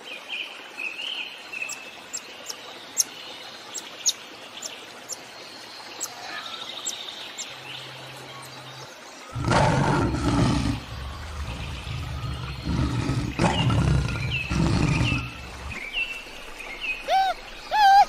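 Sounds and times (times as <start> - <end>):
lion growling and chewing: 9.4 - 15.8
rising and falling bird calls: 16.8 - 18.0.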